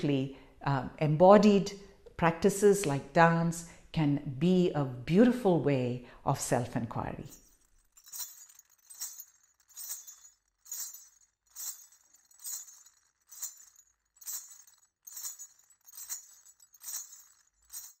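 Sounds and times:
jingling metal percussion: 0:07.3 - 0:18.0.

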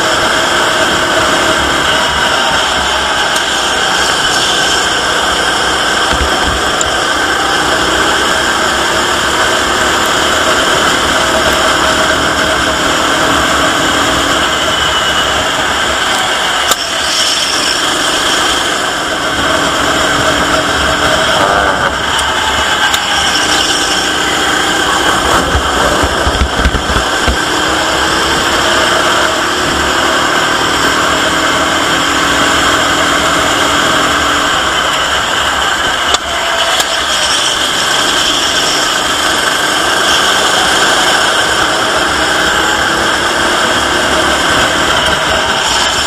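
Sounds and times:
wind rush on microphone: 0:00.0 - 0:14.6, 0:15.4 - 0:36.0
go-kart engine racing: 0:00.0 - 0:46.0.

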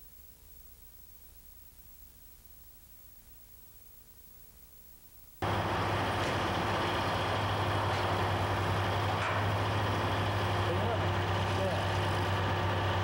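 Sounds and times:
heavy machinery engine running: 0:05.4 - 0:13.0.

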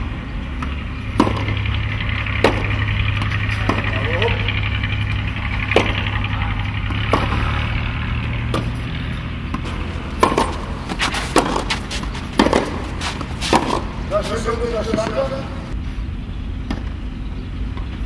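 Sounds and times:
racket striking tennis ball: 0:00.6 - 0:01.6, 0:02.4 - 0:04.2, 0:05.2 - 0:07.7, 0:08.4 - 0:15.4.

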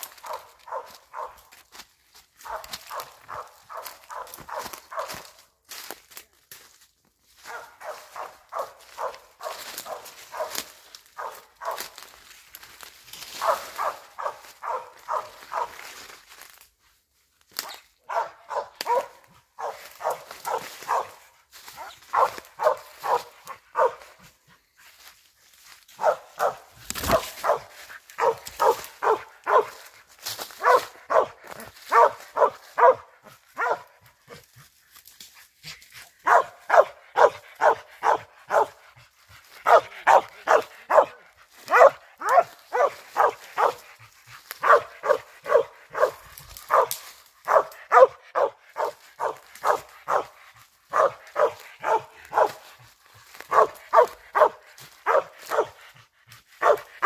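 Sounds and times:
dog barking: 0:00.0 - 0:01.5, 0:02.4 - 0:05.4, 0:07.4 - 0:12.2, 0:13.3 - 0:16.0, 0:17.6 - 0:24.3, 0:25.9 - 0:34.4, 0:36.2 - 0:38.9, 0:39.5 - 0:56.0, 0:56.6 - 0:57.0.

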